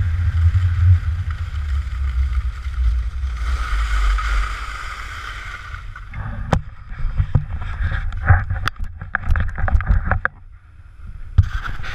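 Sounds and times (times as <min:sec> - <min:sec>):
skis sliding over snow: 0:00.0 - 0:08.2.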